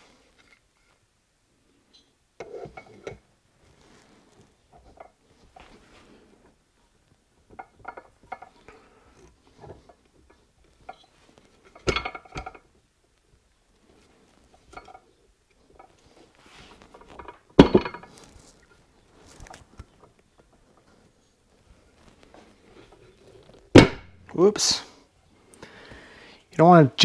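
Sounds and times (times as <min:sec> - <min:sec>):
metal cover clinking and knocking: 0:11.7 - 0:12.6, 0:17.2 - 0:18.2.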